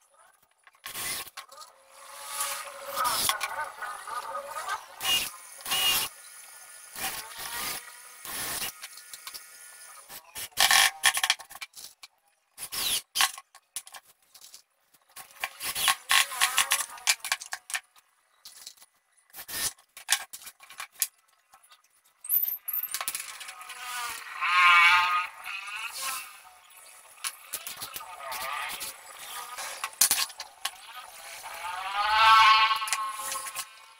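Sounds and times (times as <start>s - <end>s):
cordless drill driving screws: 0.9s - 1.4s, 5.0s - 6.2s, 6.8s - 10.9s, 12.6s - 13.3s, 15.4s - 17.2s, 19.4s - 19.8s.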